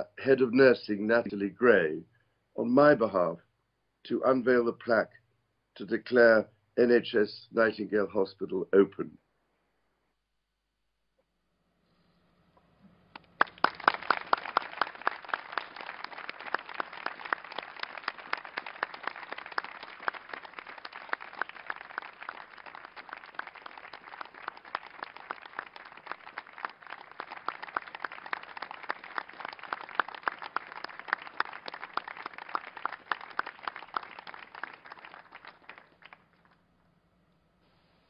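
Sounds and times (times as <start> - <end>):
group of people applauding: 13.1 - 36.6.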